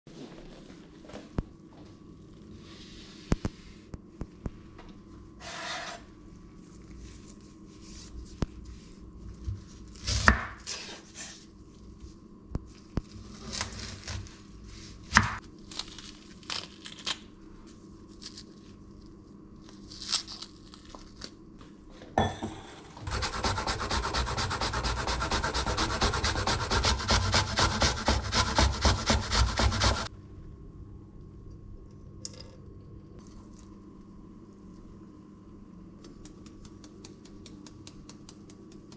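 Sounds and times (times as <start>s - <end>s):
onion grated on metal grater: 23.0s - 30.1s
papery rubbing of onion skin: 23.0s - 30.1s.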